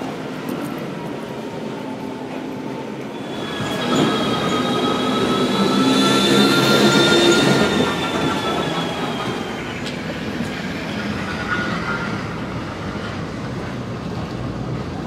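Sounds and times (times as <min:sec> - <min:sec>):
train rushing rumble: 0:00.0 - 0:15.0
train wheel squeal: 0:03.1 - 0:13.2.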